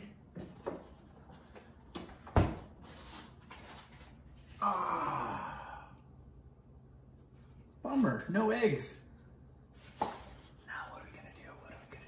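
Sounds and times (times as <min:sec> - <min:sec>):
refrigerator door opening and shutting: 0:02.0 - 0:02.7.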